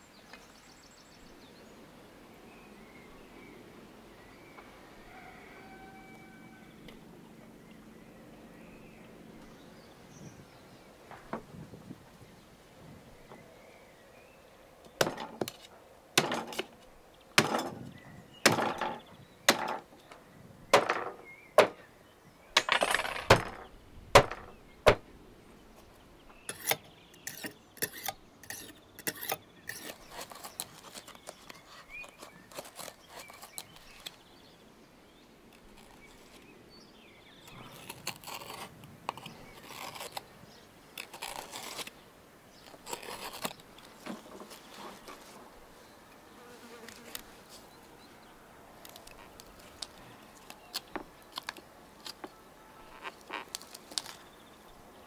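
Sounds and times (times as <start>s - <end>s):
knife scraping on whetstone: 26.5s - 33.6s, 37.6s - 40.2s.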